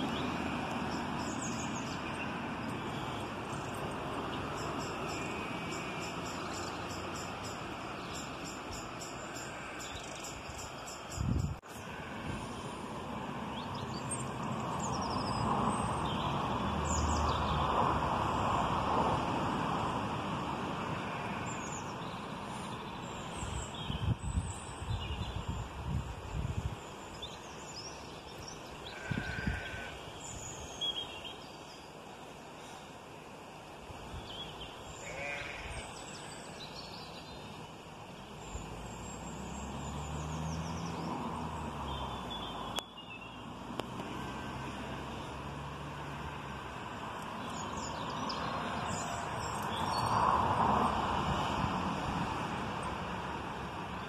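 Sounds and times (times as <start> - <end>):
birds chirping: 0.0 - 12.7, 26.8 - 33.6, 34.2 - 45.5, 47.1 - 51.6
vehicle passing with low hum: 0.0 - 23.4, 38.1 - 54.0
sheep bleating: 28.9 - 30.0, 35.0 - 35.9.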